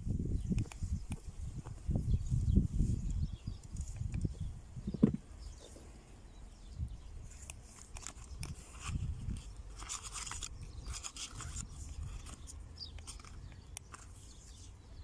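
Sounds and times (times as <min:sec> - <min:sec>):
rustling scraping and clicking: 0:07.3 - 0:14.7.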